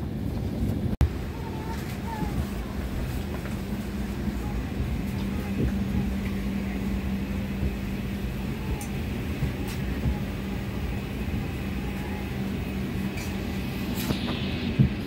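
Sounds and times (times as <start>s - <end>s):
airliner cabin hum: 0.0s - 15.0s.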